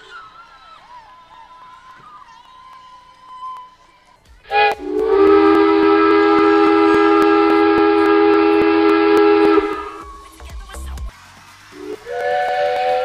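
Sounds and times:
train horn: 0:04.5 - 0:10.3, 0:11.8 - 0:13.0.

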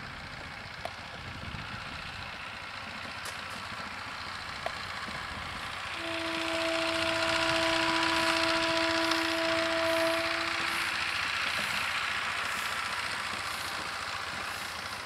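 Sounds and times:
locomotive horn: 0:05.9 - 0:12.7.

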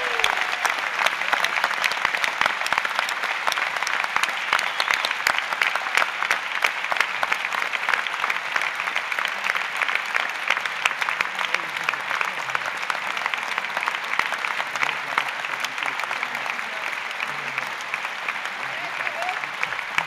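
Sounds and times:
crowd applauding: 0:00.0 - 0:20.0.

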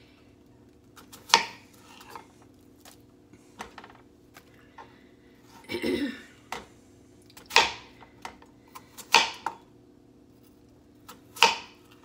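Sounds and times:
knife chopping onion on board: 0:01.0 - 0:02.2, 0:07.4 - 0:09.6, 0:11.1 - 0:11.8.

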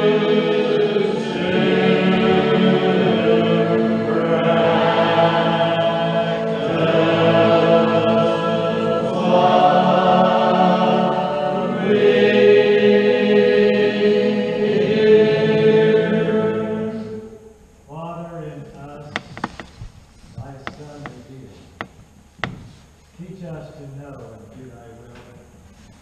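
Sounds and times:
congregation singing a hymn: 0:00.0 - 0:17.5, 0:20.2 - 0:23.6.

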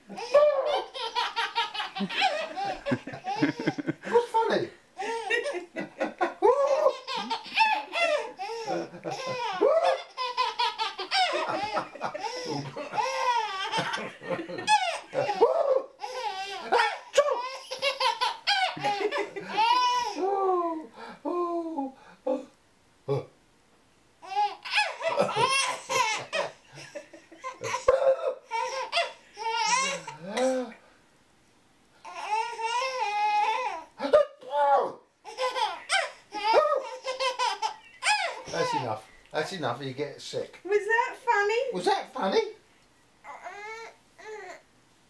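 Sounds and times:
baby laughing: 0:00.1 - 0:04.3, 0:05.0 - 0:20.4, 0:24.2 - 0:30.3, 0:35.2 - 0:39.0
man pretend sneezing: 0:15.2 - 0:15.9, 0:27.8 - 0:28.4, 0:30.2 - 0:30.8
drawn-out lower voice: 0:20.2 - 0:22.5.

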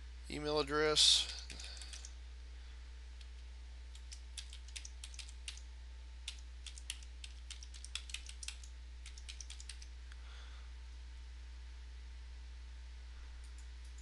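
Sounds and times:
steady low hum: 0:00.0 - 0:14.0
keyboard typing: 0:01.2 - 0:02.1, 0:03.9 - 0:05.6, 0:06.2 - 0:09.9.

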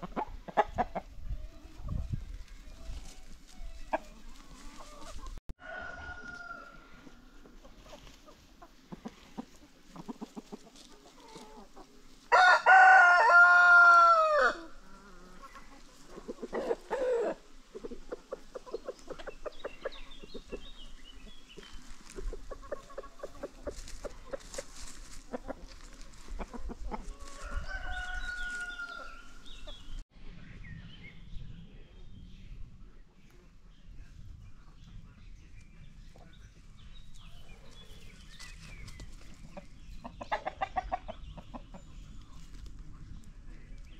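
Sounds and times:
hens clucking: 0:00.0 - 0:30.0, 0:37.1 - 0:42.6
rooster crowing: 0:05.6 - 0:07.0, 0:12.3 - 0:14.8, 0:27.2 - 0:29.3.

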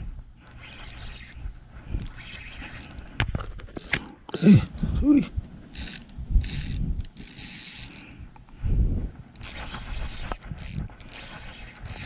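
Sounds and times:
fishing reel ratcheting whir: 0:00.5 - 0:03.2, 0:03.8 - 0:04.8, 0:05.7 - 0:08.2, 0:09.3 - 0:12.0.

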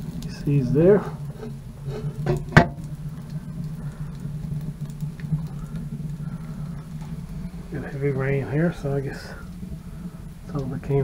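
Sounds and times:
steam hissing: 0:00.0 - 0:04.4
wood fire crackling: 0:00.0 - 0:11.0.

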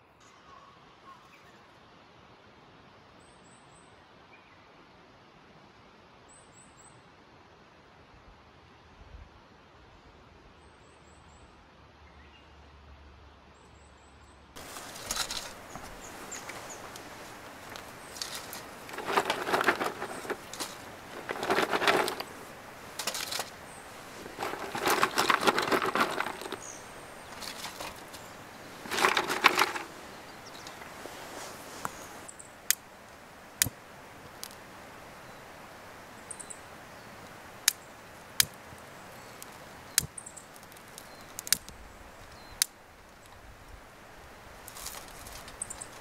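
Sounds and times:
dry twigs rustling and crunching: 0:14.6 - 0:34.6, 0:37.5 - 0:43.6, 0:44.5 - 0:46.0
fire clicks and crackles: 0:14.6 - 0:36.6, 0:37.2 - 0:46.0.

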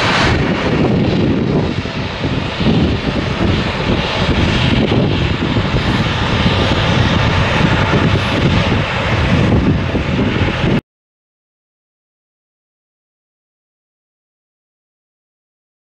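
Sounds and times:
jet engines roaring: 0:00.0 - 0:10.8.

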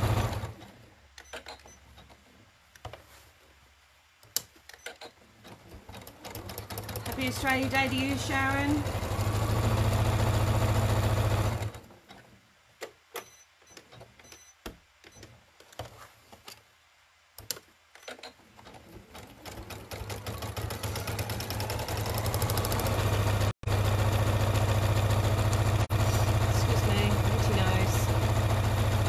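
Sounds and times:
sewing machine stitching: 0:00.0 - 0:02.2, 0:04.7 - 0:12.2, 0:17.9 - 0:29.0.

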